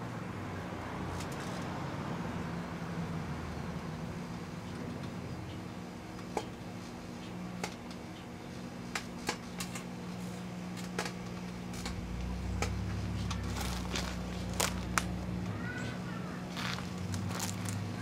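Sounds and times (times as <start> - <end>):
microwave ovens humming: 0.0 - 18.0
low rumble: 11.5 - 18.0.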